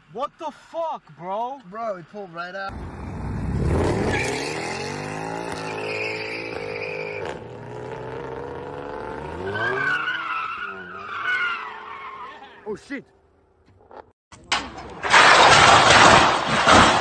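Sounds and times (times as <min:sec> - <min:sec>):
tyres squealing: 0:05.6 - 0:07.3, 0:09.2 - 0:12.9.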